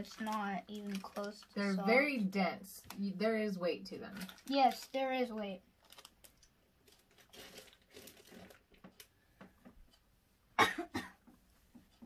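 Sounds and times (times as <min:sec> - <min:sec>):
person coughing: 0:10.6 - 0:11.2.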